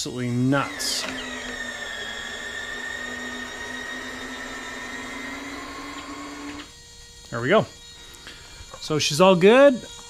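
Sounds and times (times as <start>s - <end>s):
landing gear retract motors whining: 0.0s - 9.0s.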